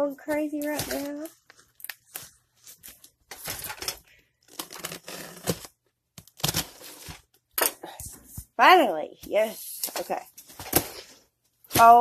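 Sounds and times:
cardboard box being torn open: 4.5s - 5.7s.

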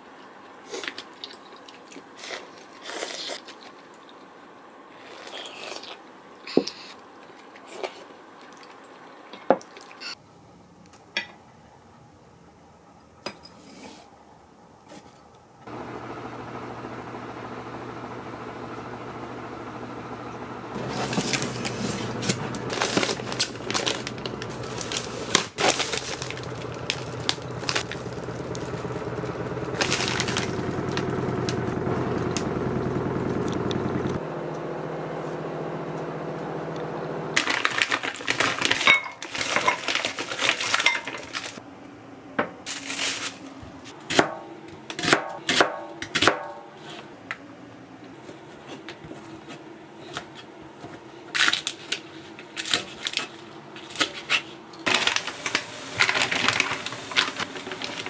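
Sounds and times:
steady low hum: 15.6s - 37.4s
plastic packaging crinkling: 20.8s - 31.8s, 37.4s - 41.6s, 42.7s - 43.6s, 54.8s - 58.0s.

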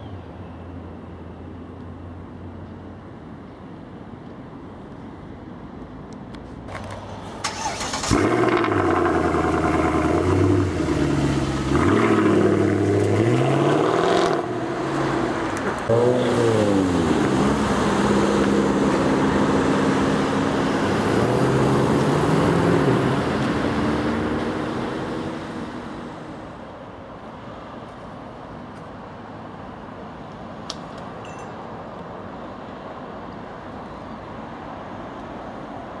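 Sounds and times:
faint traffic: 0.0s - 36.0s
car engine accelerating hard: 7.5s - 26.1s.

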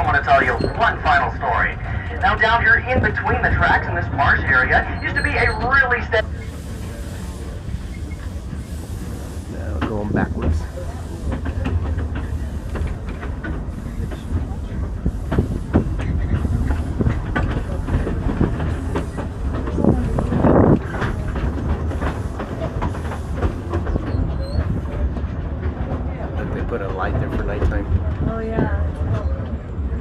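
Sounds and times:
train rumble: 0.0s - 30.0s
wheels clicking over rail joints: 0.0s - 30.0s
faint pulsing steam hiss: 6.2s - 17.0s.

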